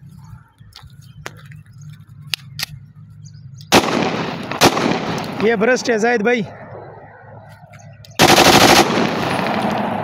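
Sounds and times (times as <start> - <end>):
gun handling clicks: 2.3 - 2.8
automatic pistol firing: 3.7 - 5.6, 8.2 - 9.9.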